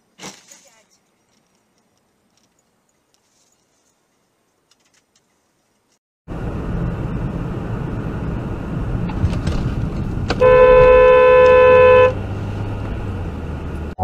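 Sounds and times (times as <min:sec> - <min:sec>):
road and engine noise: 0:00.0 - 0:14.0
car horn blast: 0:10.4 - 0:12.2.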